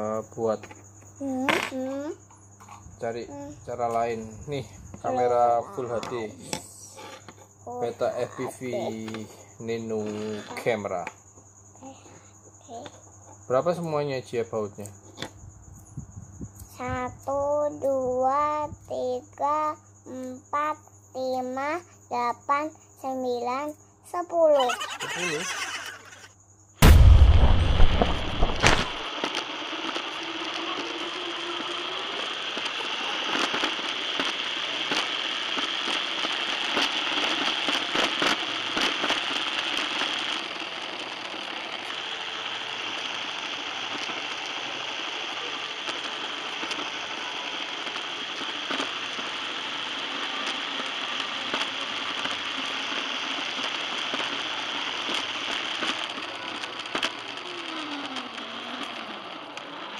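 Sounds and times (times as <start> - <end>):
rc car rattling over tiles: 24.6 - 26.3, 55.0 - 59.9.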